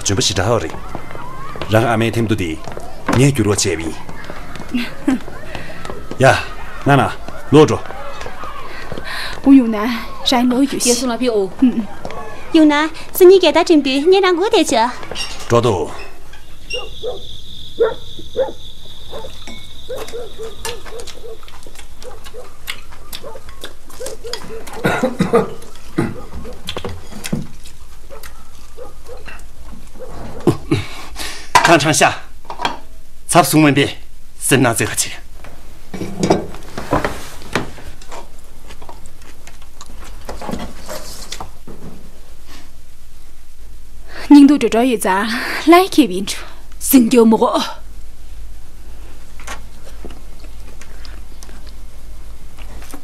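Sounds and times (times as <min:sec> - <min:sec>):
steady low hum: 0:00.0 - 0:53.0
chopsticks and bowls clicking: 0:19.4 - 0:24.8.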